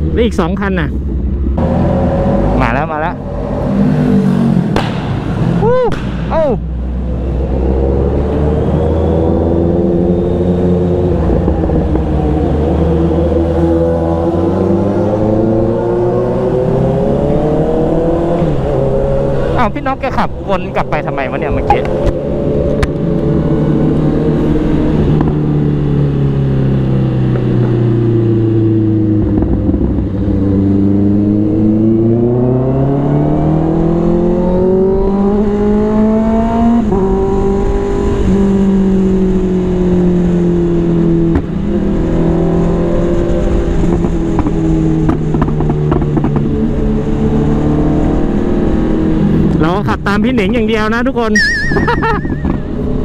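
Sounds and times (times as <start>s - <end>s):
motorcycle engine revving: 1.5s - 39.8s.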